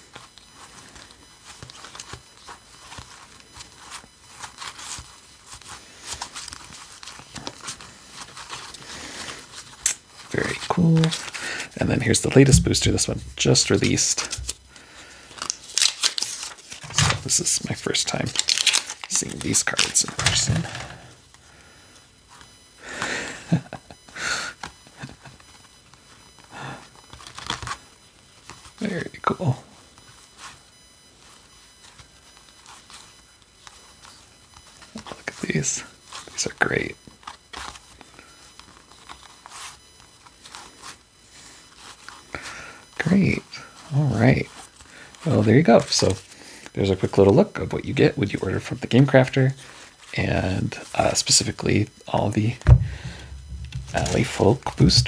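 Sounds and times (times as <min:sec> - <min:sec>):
playing cards flicking and rustling: 0:00.1 - 0:21.2, 0:24.6 - 0:28.7, 0:30.0 - 0:42.4, 0:49.6 - 0:55.0.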